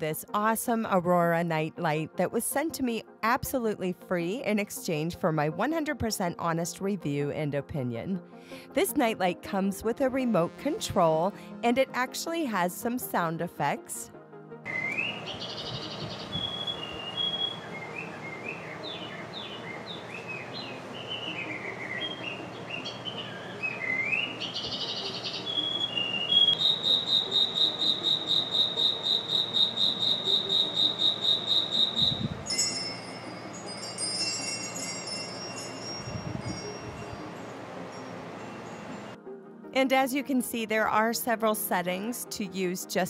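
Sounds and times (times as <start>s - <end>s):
electronic bird-like chirps: 14.7s - 33.8s
high pulsing chirp: 14.7s - 39.2s
tinkling chime tones: 26.6s - 39.2s.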